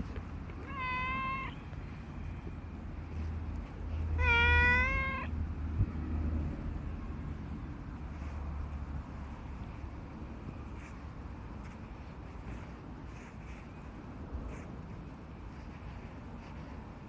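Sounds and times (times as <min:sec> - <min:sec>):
cat meowing: 0:00.6 - 0:01.7, 0:04.1 - 0:05.4.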